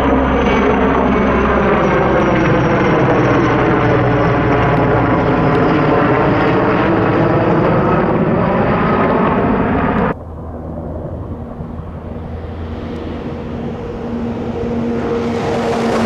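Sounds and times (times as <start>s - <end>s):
helicopter rotor and turbine: 0.0s - 16.0s
high turbine whine: 0.0s - 16.0s
faint steady drone: 10.0s - 16.0s.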